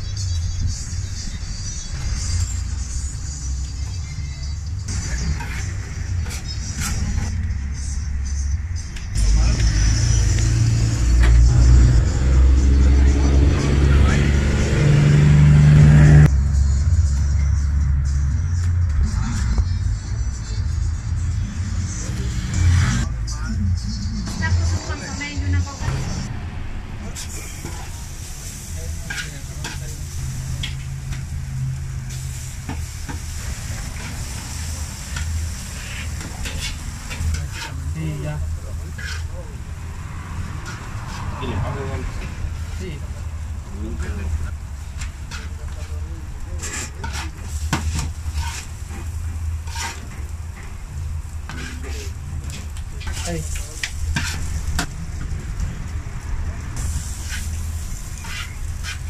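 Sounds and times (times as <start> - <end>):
steady low rumble: 4.8 - 59.0
metal scraping on steel: 4.9 - 7.5, 28.5 - 32.4, 35.1 - 38.0, 38.8 - 39.4, 45.1 - 50.3, 51.5 - 54.9, 56.8 - 59.0
liver and onions sizzling on griddle: 27.1 - 41.2, 41.8 - 59.0
meat sizzling: 27.8 - 37.8, 56.8 - 59.0
knife and spatula chopping: 58.2 - 59.0.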